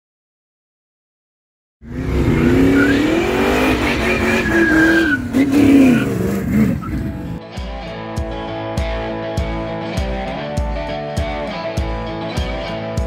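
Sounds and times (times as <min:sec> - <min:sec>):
car engine revving: 0:01.8 - 0:07.4
tyres squealing on pavement: 0:02.7 - 0:07.4
plucked blues guitar music: 0:03.2 - 0:13.0.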